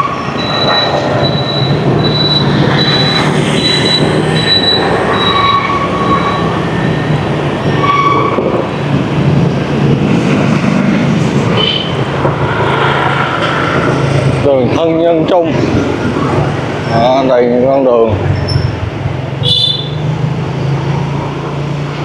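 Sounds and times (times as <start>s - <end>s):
motorbike engine drone: 0.0s - 22.0s
surrounding traffic noise: 0.0s - 22.0s
high beeps: 0.3s - 7.1s
short horn honks: 19.4s - 20.0s.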